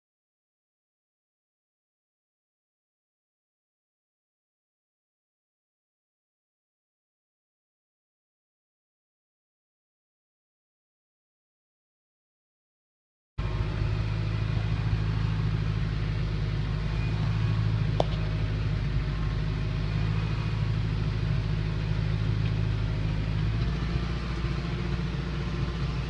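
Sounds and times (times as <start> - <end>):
tractor diesel engine droning: 13.4 - 26.0.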